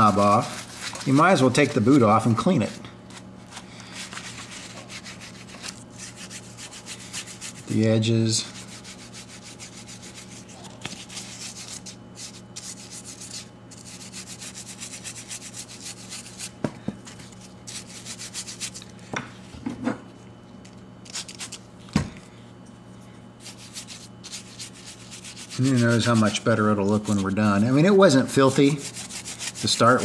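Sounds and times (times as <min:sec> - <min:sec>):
brush scrubbing leather: 0:00.0 - 0:01.7, 0:04.2 - 0:07.8, 0:08.5 - 0:16.6, 0:17.7 - 0:18.8, 0:23.4 - 0:27.5, 0:28.4 - 0:30.0.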